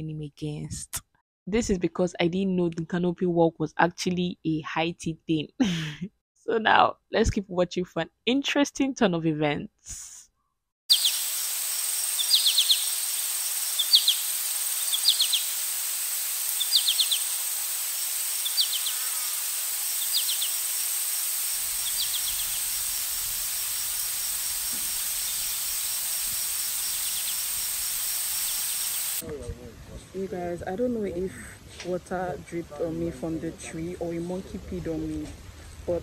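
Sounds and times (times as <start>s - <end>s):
insects droning: 10.9s - 29.2s
rattling insect chirp: 10.9s - 29.2s.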